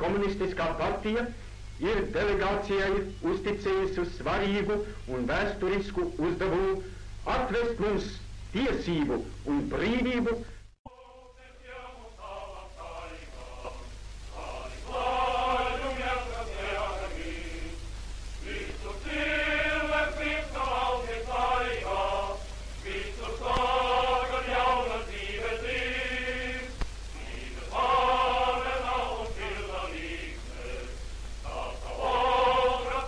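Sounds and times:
low film soundtrack hum: 0:00.0 - 0:33.0
many voices chanting in unison: 0:10.9 - 0:33.0.

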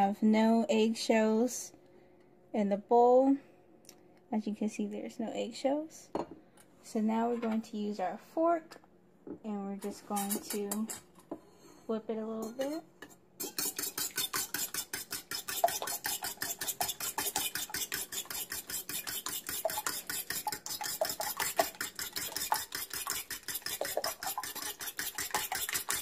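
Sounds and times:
fork whisking eggs in metal bowl: 0:09.8 - 0:11.0, 0:13.4 - 0:26.0.

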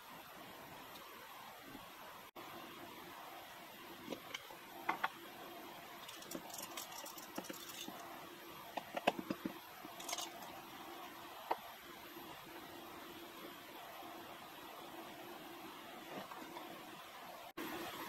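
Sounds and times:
clicks and knocks of handling: 0:08.7 - 0:10.5.

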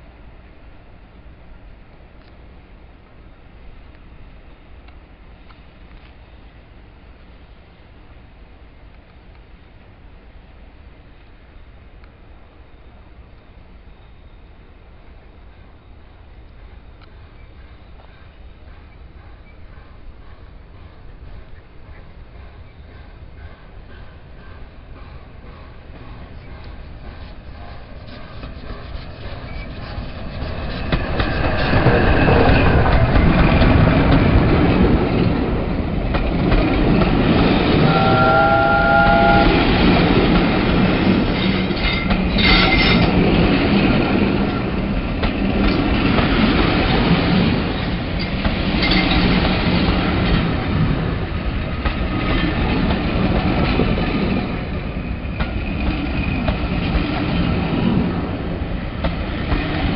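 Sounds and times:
steam locomotive passing: 0:00.0 - 0:59.9
wheels clicking over rail joints: 0:24.4 - 0:37.9, 0:39.8 - 0:58.0.

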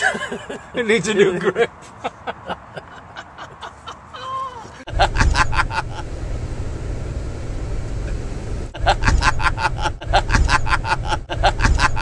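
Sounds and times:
coach engine and road rumble: 0:00.0 - 0:12.0.

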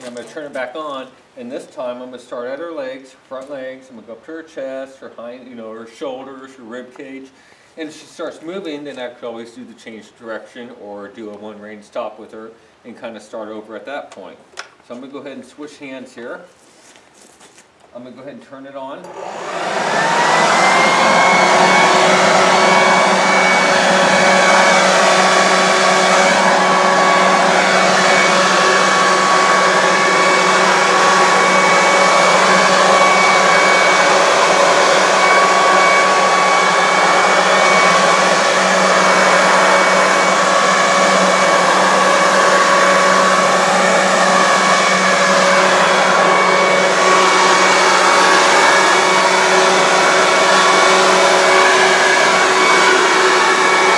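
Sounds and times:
leaf blower whining: 0:19.0 - 0:53.9
rushing air: 0:19.2 - 0:53.9.

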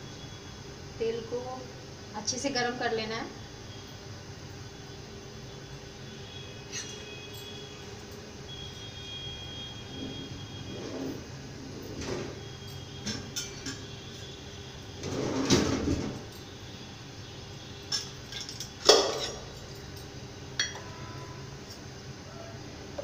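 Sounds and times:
dishes and utensils clattering: 0:13.1 - 0:13.9, 0:17.9 - 0:19.8, 0:20.6 - 0:20.9.

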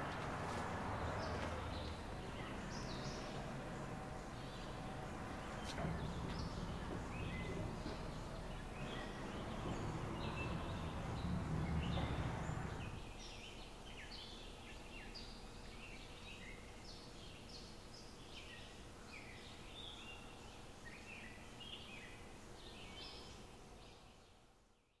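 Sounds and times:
small birds chirping: 0:00.0 - 0:24.4
low rumble: 0:00.6 - 0:13.0.

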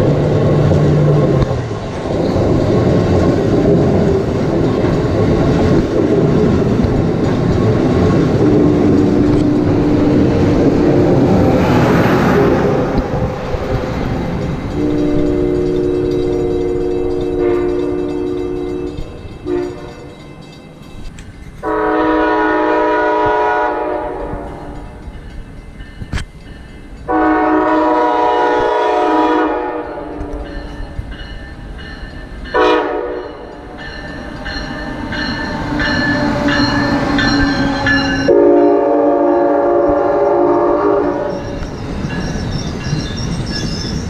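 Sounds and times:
train wheels on rails: 0:00.0 - 0:44.0
train horn blasts: 0:14.7 - 0:20.2, 0:21.6 - 0:24.8, 0:27.1 - 0:30.6, 0:32.5 - 0:33.5, 0:36.5 - 0:41.6.

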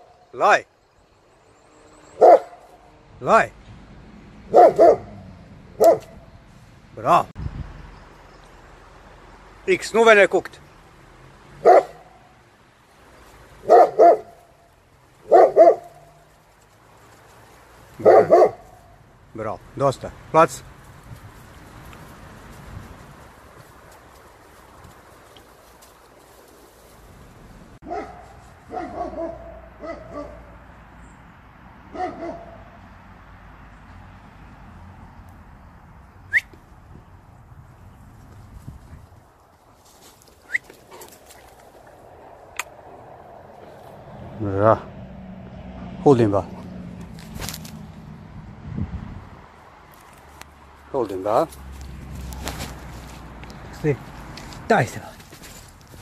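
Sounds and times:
dog barking: 0:02.2 - 0:02.7, 0:04.5 - 0:05.2, 0:05.8 - 0:06.2, 0:11.6 - 0:12.2, 0:13.6 - 0:14.4, 0:15.2 - 0:16.2, 0:18.0 - 0:18.9, 0:27.8 - 0:30.6, 0:31.9 - 0:32.8.

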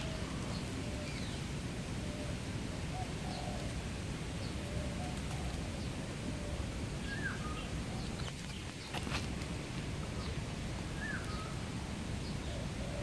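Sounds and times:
faint bird chirps: 0:10.0 - 0:13.0.

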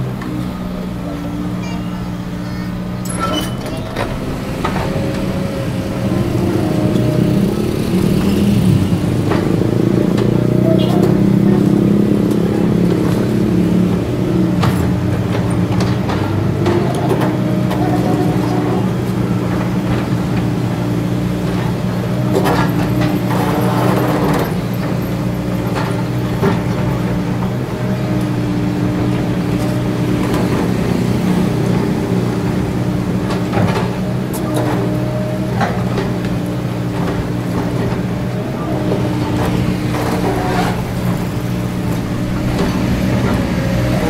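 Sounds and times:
excavator diesel engine: 0:00.0 - 0:44.0.

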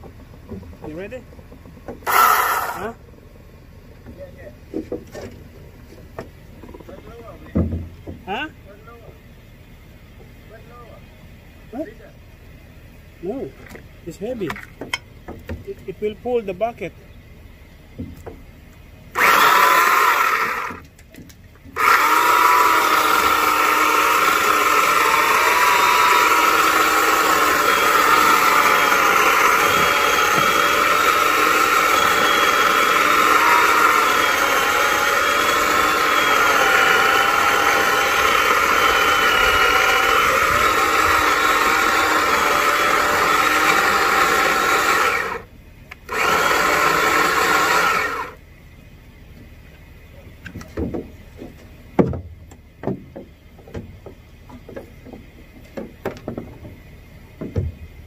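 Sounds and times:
battery saw cutting wood: 0:02.0 - 0:03.0, 0:19.2 - 0:20.8, 0:21.8 - 0:48.4.

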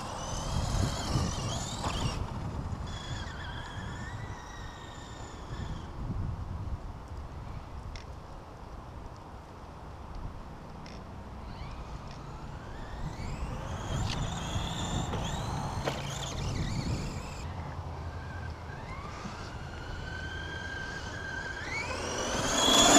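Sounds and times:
electric rc truck motor whining: 0:00.0 - 0:06.2, 0:11.3 - 0:22.9.

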